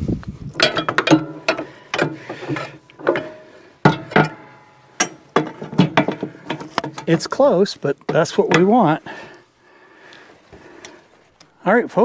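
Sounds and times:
metallic knocks: 0.6 - 7.5, 8.1 - 8.9
metal driveshaft clicks and clanks: 0.6 - 9.0.

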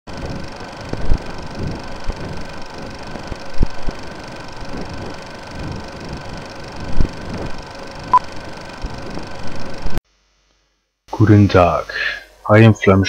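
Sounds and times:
film projector running: 0.1 - 10.0.

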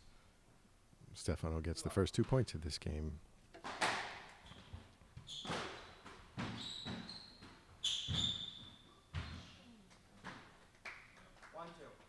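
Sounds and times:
shoes squeaking on wooden floor: 4.3 - 10.4.

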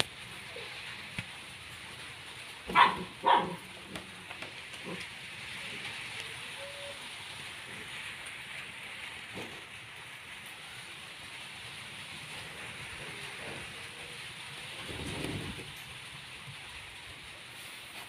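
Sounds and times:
steady hiss: 0.0 - 18.0
dog barking: 2.7 - 3.7.

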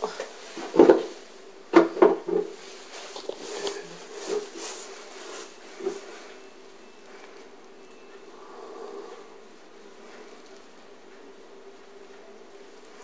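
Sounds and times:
knocks on a shelf: 1.7 - 2.6
rustling: 2.2 - 7.7.

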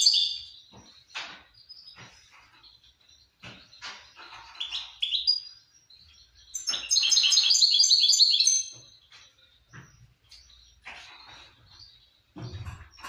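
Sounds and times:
songbird chirping and trilling: 0.0 - 13.0.

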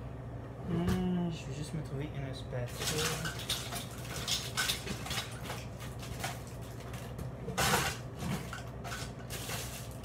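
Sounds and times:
low steady hum: 0.0 - 10.0
kitchen items clattering on counter: 2.7 - 10.0.

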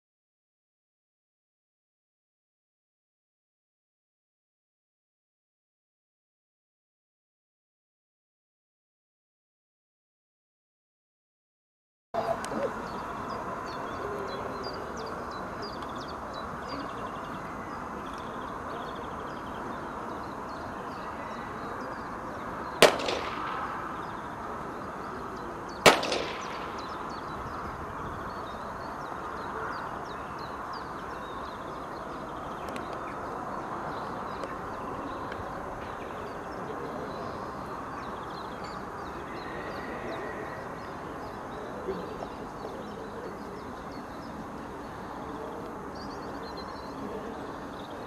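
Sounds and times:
gunshots with echo: 22.8 - 24.4, 25.8 - 27.3.

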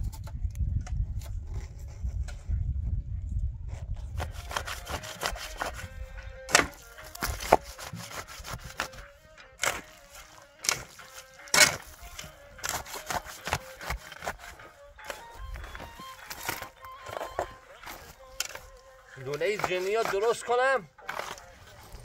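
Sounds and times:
shovel scraping earth: 3.7 - 22.0
shovel striking: 4.2 - 5.9, 6.5 - 9.0, 9.6 - 18.6, 19.2 - 21.4.

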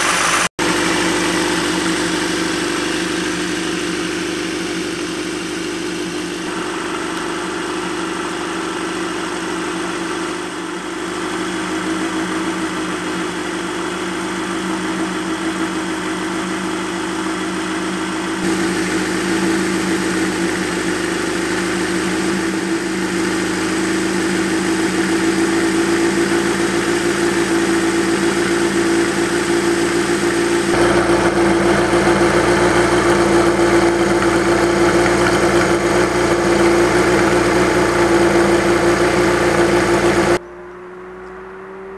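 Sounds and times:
motorcycle engine idling: 0.0 - 40.4.

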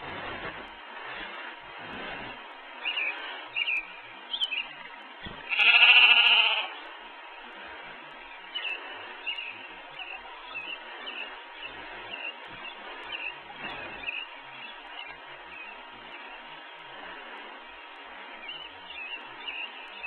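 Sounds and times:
bleat-like animal call: 5.5 - 6.8.

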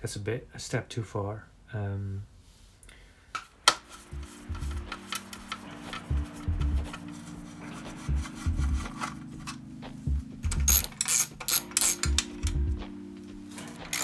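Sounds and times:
music with thumping beat: 3.8 - 14.0.

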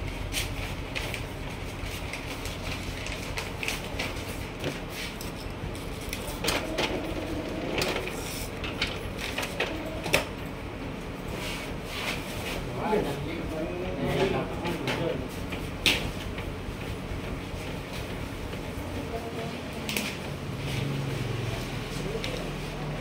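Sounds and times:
steady background hum: 0.0 - 23.0
printer clicks and whirs: 5.4 - 10.6.

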